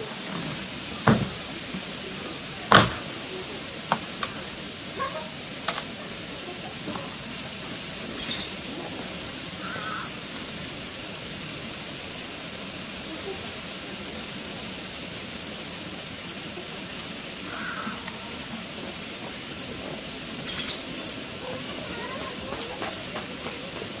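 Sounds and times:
high-pitched hiss: 0.0 - 24.0
wooden door knocks: 0.9 - 5.8.

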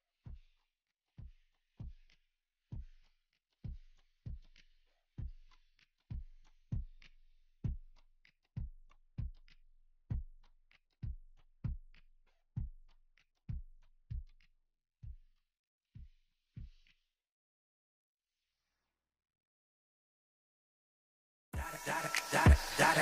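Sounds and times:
repeating kick drum beat: 0.2 - 0.6, 1.2 - 15.4, 16.0 - 16.9, 21.6 - 23.0.

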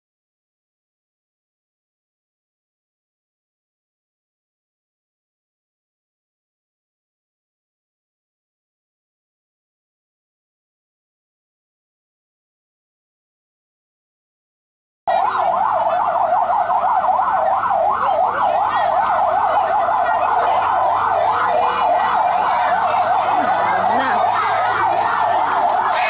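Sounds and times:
siren yelping: 15.1 - 26.0.

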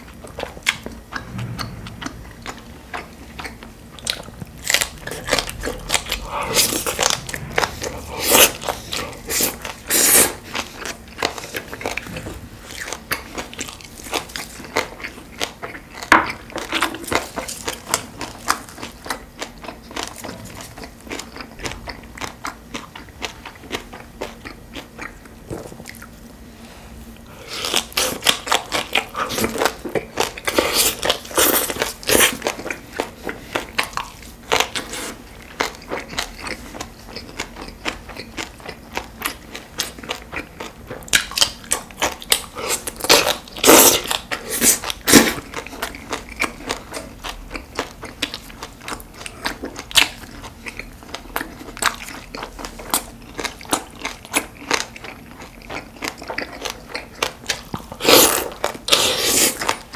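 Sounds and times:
person chewing and biting: 27.4 - 59.9.

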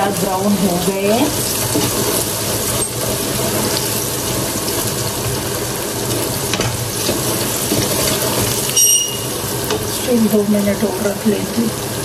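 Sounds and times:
onions sizzling in hot oil: 0.0 - 12.0
wooden spoon stirring: 7.0 - 9.9.

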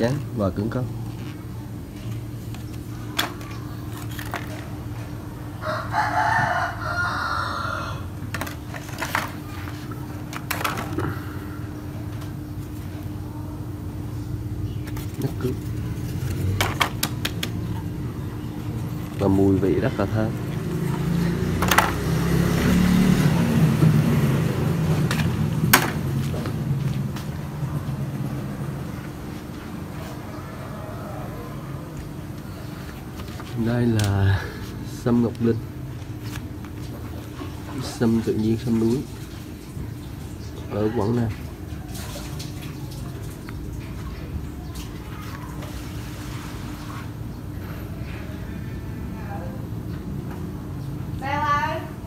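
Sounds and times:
steady low hum: 0.0 - 52.0
rooster crowing: 5.4 - 8.3, 30.0 - 32.0
vehicle engine passing by: 19.2 - 29.0.

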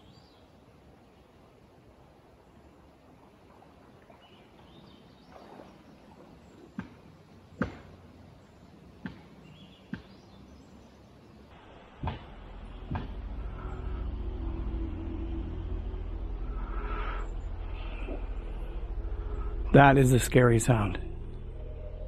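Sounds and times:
quiet forest background: 0.0 - 22.0
sharp knocks from trees: 6.7 - 8.0, 9.0 - 10.3, 12.0 - 13.2.

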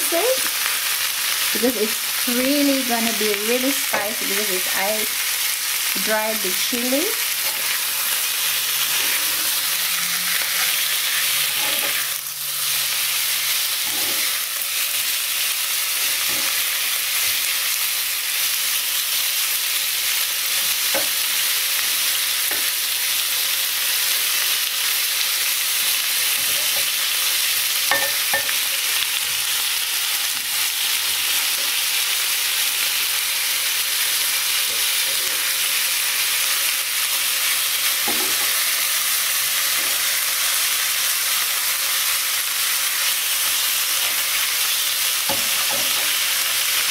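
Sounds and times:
fish sizzling in hot oil: 0.0 - 46.9
spatula scraping a pan: 8.8 - 12.8, 13.8 - 14.5.

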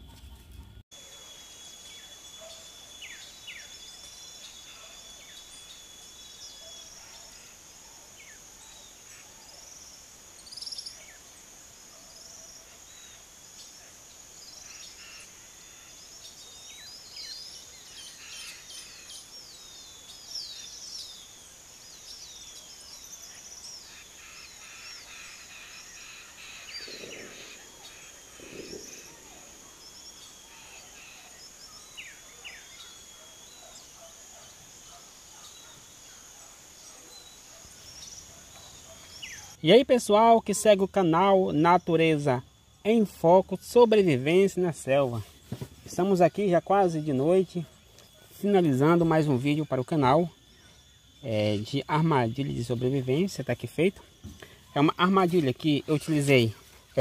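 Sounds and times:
birds chirping: 0.0 - 57.0
insect drone: 0.3 - 57.0
low calls: 21.7 - 57.0.

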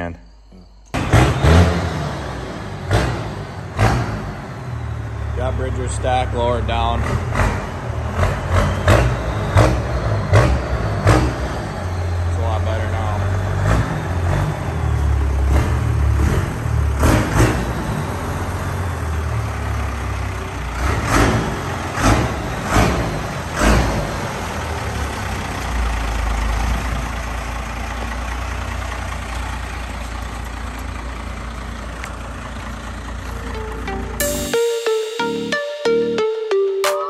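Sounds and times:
diesel engine idling: 0.0 - 35.2
loud engine bursts: 1.0 - 26.1.

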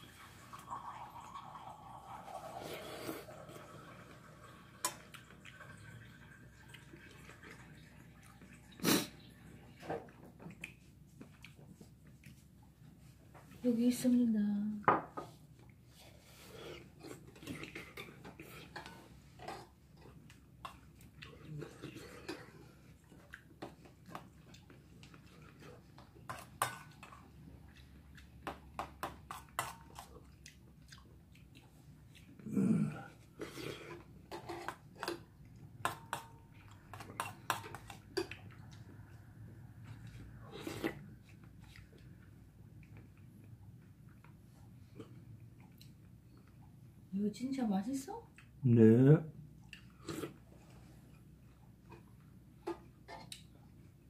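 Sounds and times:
chewing: 10.0 - 13.0, 15.6 - 46.8, 49.6 - 54.0.

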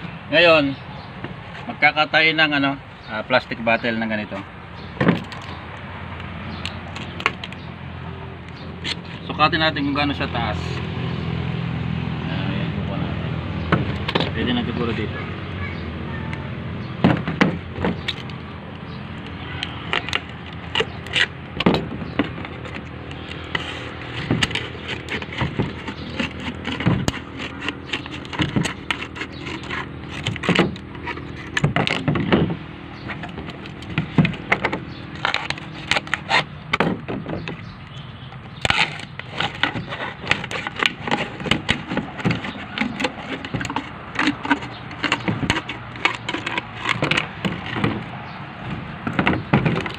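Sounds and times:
scissors cutting plastic bottle: 19.2 - 32.4, 33.1 - 37.7, 38.4 - 48.1.

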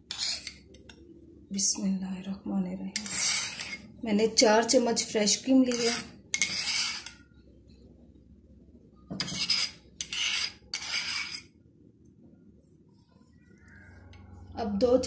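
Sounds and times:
metal spoon scraping bowl: 0.0 - 1.0, 2.9 - 4.4, 5.0 - 7.3, 9.1 - 11.6.

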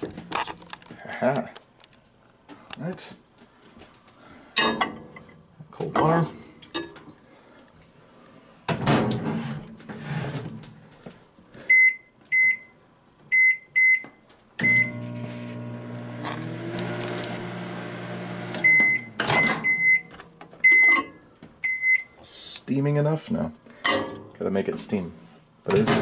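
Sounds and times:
microwave oven humming: 14.6 - 20.2
keypad beeps: 18.6 - 22.1.

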